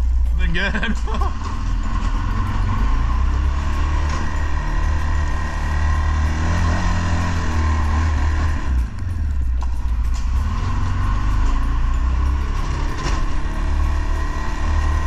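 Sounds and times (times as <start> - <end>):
atv engine plowing snow: 0.0 - 15.0.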